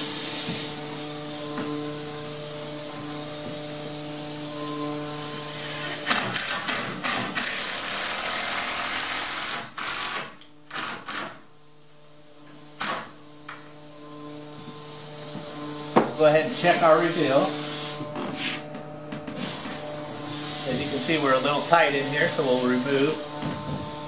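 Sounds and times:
nail gun air hissing: 0:05.6 - 0:11.4, 0:12.8 - 0:13.1
nail gun shots: 0:06.1 - 0:11.4, 0:12.8 - 0:13.1.

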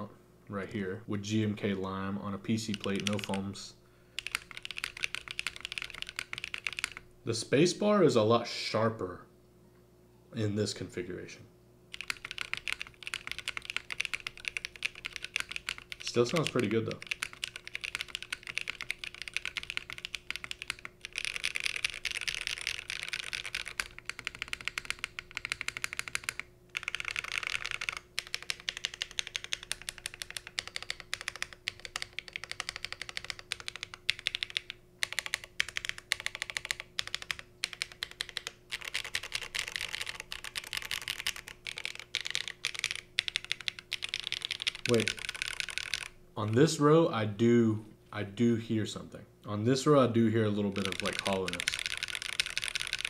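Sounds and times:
fast typing on mechanical keyboard: 0:02.6 - 0:03.5, 0:04.2 - 0:07.0, 0:11.9 - 0:46.7, 0:50.3 - 0:53.0.

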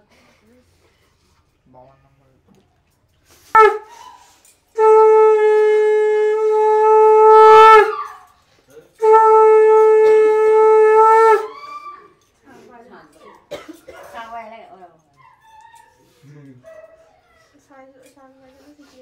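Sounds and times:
conch shell blasts: 0:03.4 - 0:12.1.

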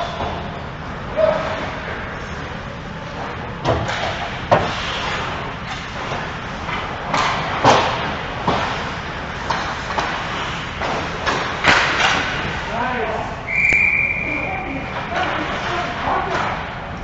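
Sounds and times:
skates scraping ice: 0:03.2 - 0:12.8
hockey sticks knocking puck: 0:03.6 - 0:12.6.

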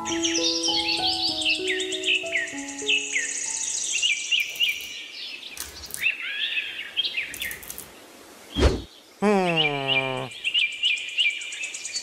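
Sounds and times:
soft melody: 0:00.0 - 0:03.9
birds chirping: 0:00.0 - 0:12.0.

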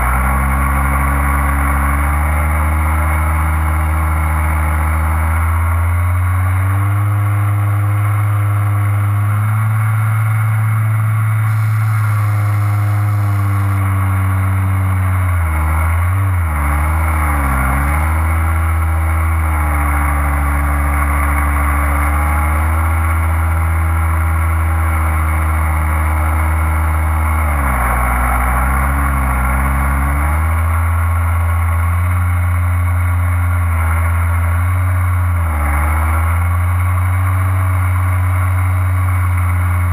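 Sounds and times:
light aircraft engine: 0:02.9 - 0:16.4.

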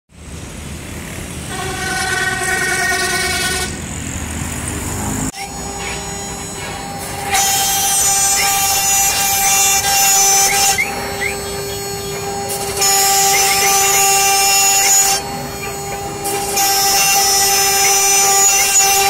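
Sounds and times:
street traffic: 0:00.1 - 0:19.0
router spindle whining: 0:00.3 - 0:19.0
vehicle horn held: 0:01.5 - 0:03.8, 0:05.5 - 0:19.0
router bit rasping into wood: 0:05.4 - 0:19.0.

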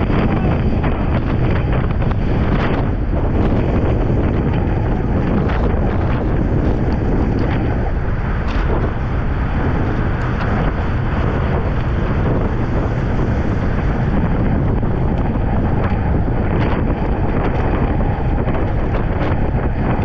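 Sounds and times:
wind rushing over microphone: 0:00.0 - 0:20.0.

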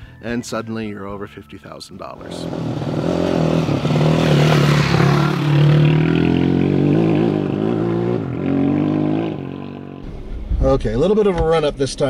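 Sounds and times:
dirt bike engine passing: 0:02.2 - 0:10.3.

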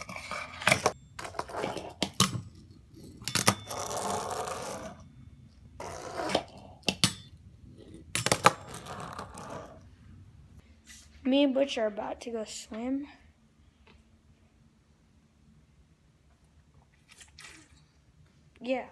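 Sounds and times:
fingerboard wheels rolling: 0:00.0 - 0:02.2, 0:03.1 - 0:05.0, 0:05.8 - 0:06.9, 0:07.8 - 0:09.8.

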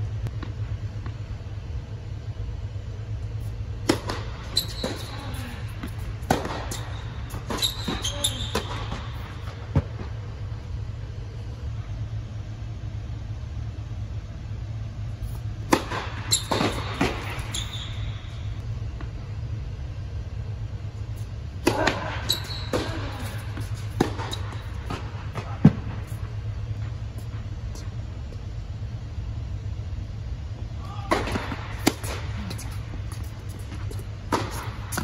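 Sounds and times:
steady low hum: 0:00.0 - 0:35.0
shoes squeaking on court: 0:03.4 - 0:10.5, 0:16.2 - 0:18.6, 0:21.2 - 0:26.5, 0:31.8 - 0:35.0
tennis ball hits and bounces: 0:03.8 - 0:05.2, 0:05.8 - 0:10.0, 0:31.1 - 0:35.0.

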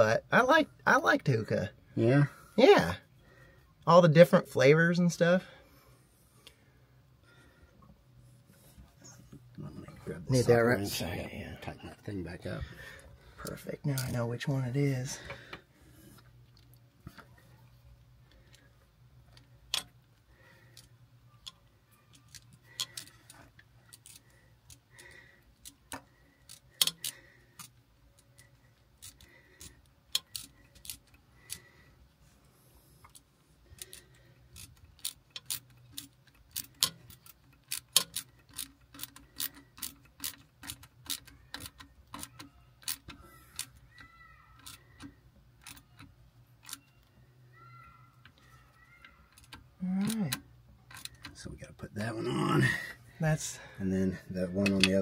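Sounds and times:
metallic clicks of hand tools: 0:25.6 - 0:27.8, 0:33.8 - 0:44.0.

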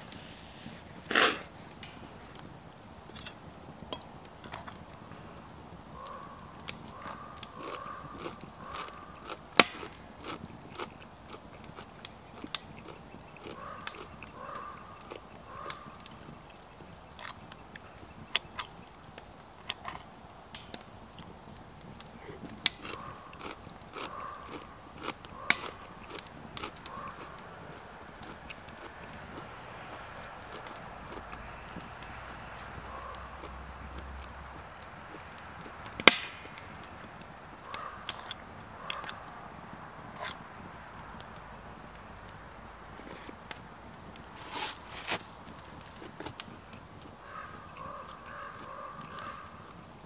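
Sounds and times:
chewing noodles: 0:06.0 - 0:20.2, 0:21.2 - 0:29.6, 0:40.1 - 0:40.4.

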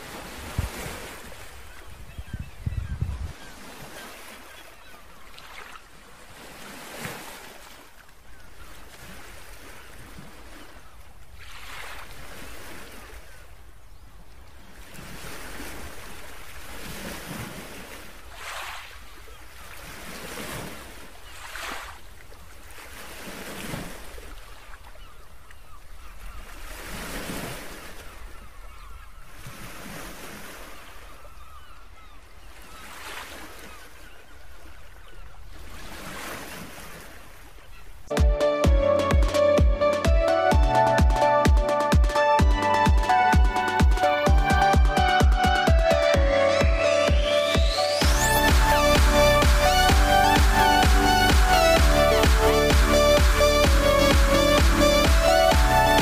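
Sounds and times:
wind rumble on microphone: 0:00.2 - 0:01.0, 0:01.8 - 0:03.5.

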